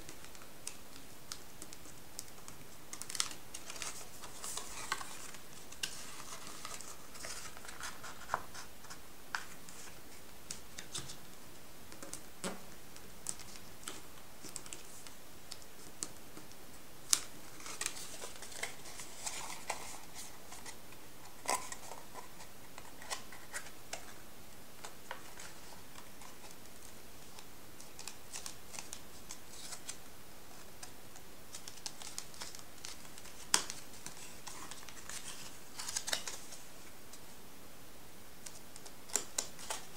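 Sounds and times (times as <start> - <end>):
paper rustling and crinkling: 0.1 - 11.2, 17.1 - 24.2, 31.5 - 36.7.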